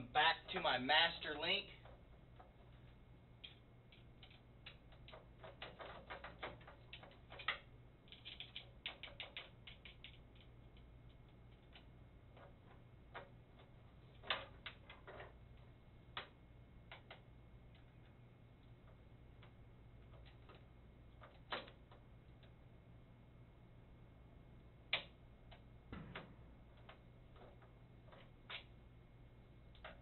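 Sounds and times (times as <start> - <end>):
metal chain clicking and rattling: 1.8 - 15.7.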